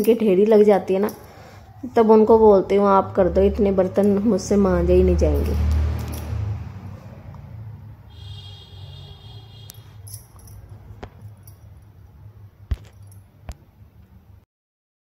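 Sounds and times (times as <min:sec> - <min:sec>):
metallic ringing: 0:08.1 - 0:11.8.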